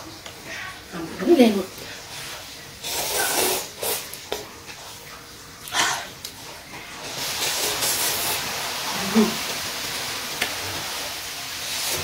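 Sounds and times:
noodles being slurped: 0:02.3 - 0:04.4, 0:06.2 - 0:09.4.

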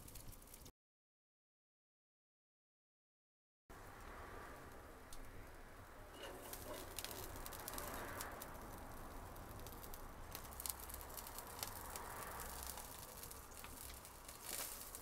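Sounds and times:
wood fire crackling: 0:00.0 - 0:00.7, 0:03.8 - 0:15.0.

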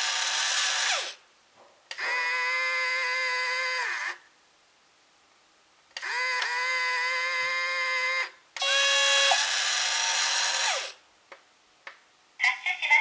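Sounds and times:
small electric motors whining: 0:00.0 - 0:01.2, 0:02.0 - 0:04.2, 0:06.0 - 0:11.0.

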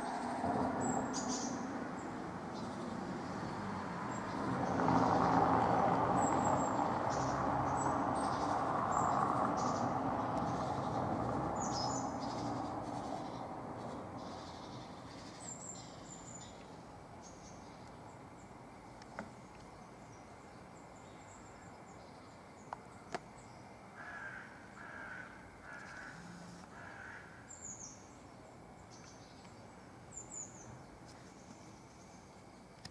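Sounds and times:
birds chirping: 0:00.0 - 0:18.6
harsh repeated bird calls: 0:06.1 - 0:16.6, 0:23.9 - 0:28.1.

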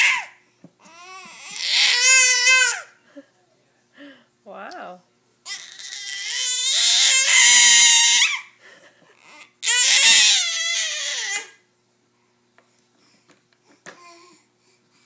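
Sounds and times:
infant squealing: 0:00.0 - 0:02.9, 0:05.5 - 0:08.5, 0:09.3 - 0:11.6.

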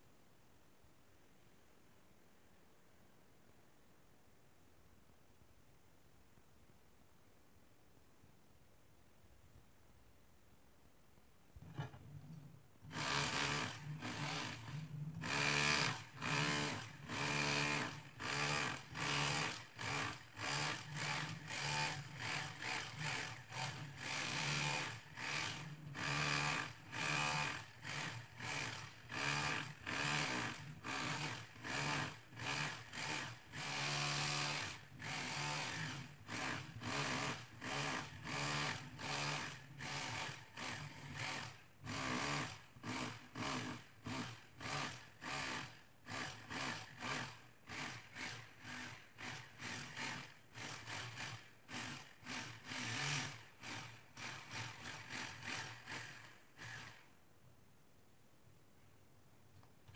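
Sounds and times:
motor hum: 0:11.7 - 0:57.1
power tool chipping tiles: 0:12.9 - 0:57.1.

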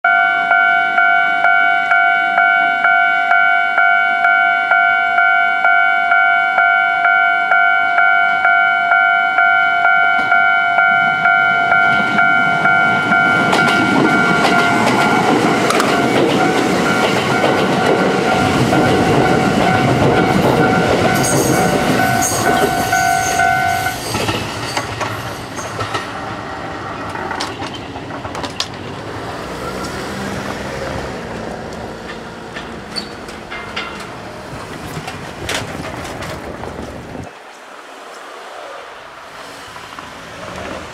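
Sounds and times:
level crossing warning bell: 0:00.0 - 0:25.9
electric train passing: 0:00.1 - 0:40.9
wheels clacking over rail joints: 0:11.2 - 0:38.3, 0:39.0 - 0:40.9.

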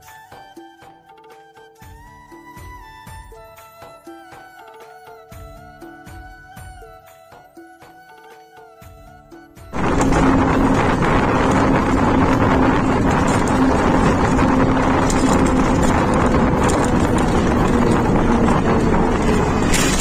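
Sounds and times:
road and wind noise: 0:09.7 - 0:20.0
bus engine hum: 0:09.8 - 0:20.0.

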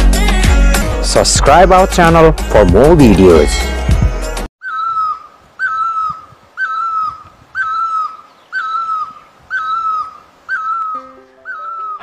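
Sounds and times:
bird calling rising note: 0:04.6 - 0:12.0.

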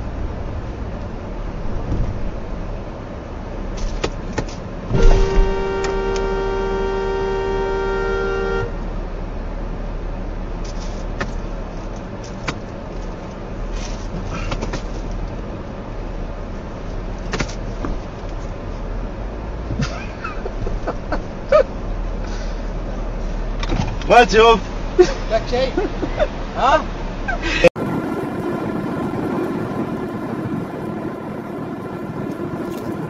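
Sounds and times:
road noise from moving car: 0:00.0 - 0:33.0
car horn blast: 0:04.9 - 0:08.8.

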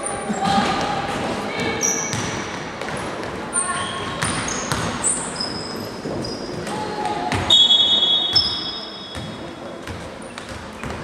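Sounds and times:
sneakers squeaking: 0:00.0 - 0:11.0
basketball bouncing: 0:02.1 - 0:03.0, 0:04.1 - 0:05.0, 0:09.1 - 0:11.0
referee's whistle blast: 0:07.5 - 0:09.1.

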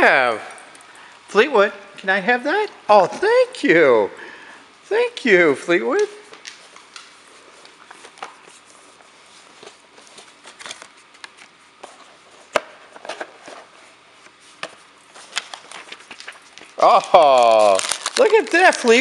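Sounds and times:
gift box clicks and rustles: 0:15.3 - 0:19.0.

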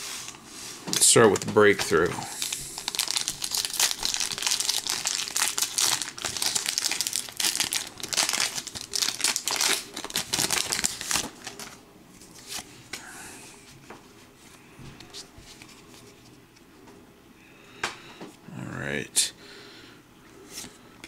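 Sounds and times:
foil wrapper crinkling and tearing: 0:00.9 - 0:11.8.

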